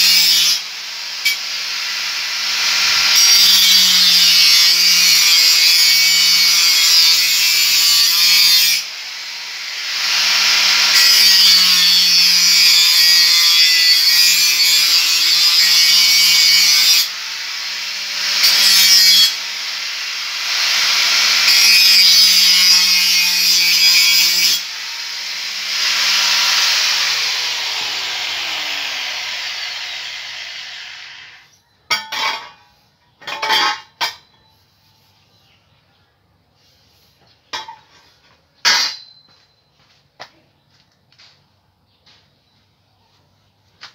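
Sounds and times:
angle grinder cutting metal pipe: 0.0s - 31.5s.

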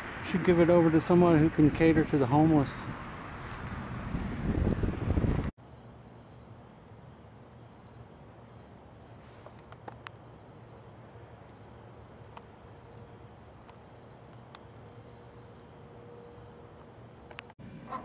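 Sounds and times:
crickets chirping: 5.6s - 17.6s.

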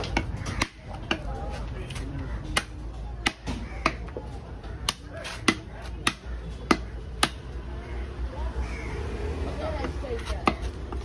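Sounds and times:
cleaver chopping on wooden block: 0.0s - 1.3s, 2.5s - 4.2s, 4.8s - 7.6s.

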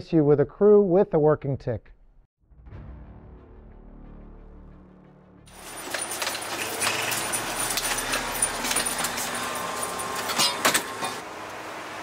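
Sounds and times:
footsteps: 5.5s - 11.2s
gear jangling and rattling: 5.5s - 11.2s
metal clanks: 5.5s - 11.2s.

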